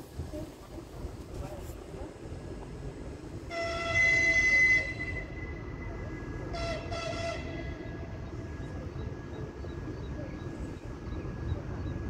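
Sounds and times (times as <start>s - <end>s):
locomotive horn blasts: 3.5s - 5.6s, 6.5s - 8.2s.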